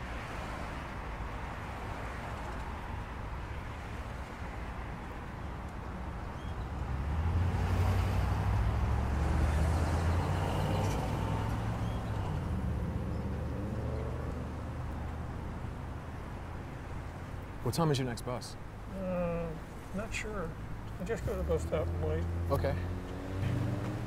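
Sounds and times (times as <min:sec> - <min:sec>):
vehicle engine passing: 0:06.8 - 0:16.1, 0:21.0 - 0:24.0.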